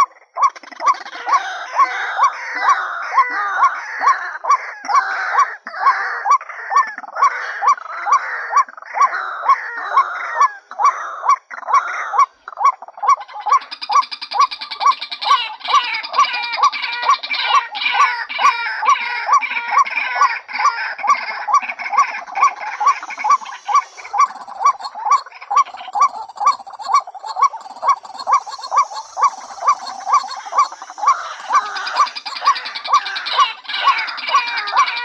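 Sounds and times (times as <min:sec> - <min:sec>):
overlapping bird chatter: 0:00.0 - 0:35.0
waterhen croaking calls: 0:00.0 - 0:35.0.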